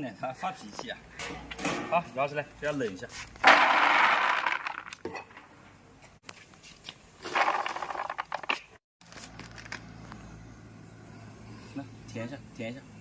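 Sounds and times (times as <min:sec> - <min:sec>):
corn kernels poured into basin: 0:03.4 - 0:04.9.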